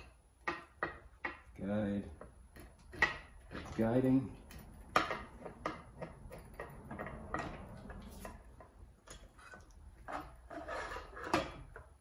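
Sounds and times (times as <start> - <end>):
light metal clicks and scrapes: 2.5 - 12.0.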